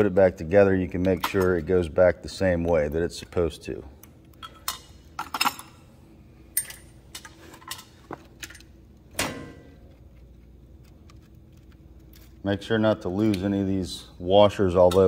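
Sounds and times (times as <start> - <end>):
metallic clicks and clinks: 6.5 - 8.7.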